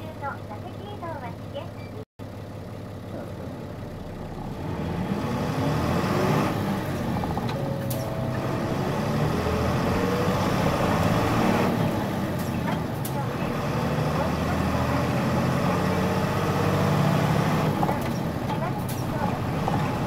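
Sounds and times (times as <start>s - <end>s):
bus diesel engine: 0.0s - 20.0s.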